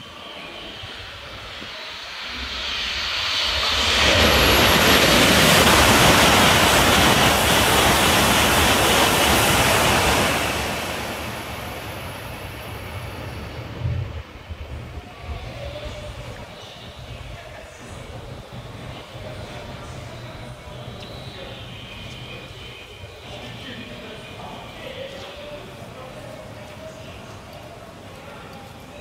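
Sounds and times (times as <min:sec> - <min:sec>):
high-speed train passing: 0:00.0 - 0:29.0.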